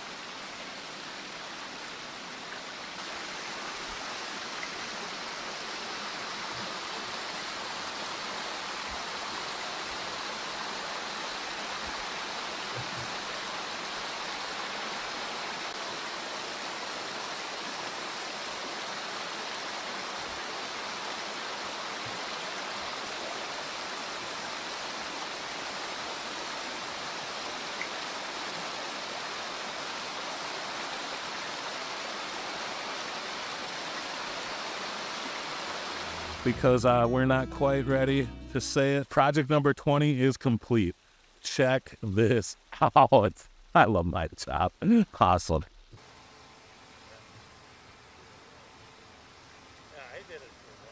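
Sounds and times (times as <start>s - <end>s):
waterfall spilling over stone: 0.0s - 36.4s
water running through rocky stream: 0.0s - 37.0s, 38.8s - 46.1s.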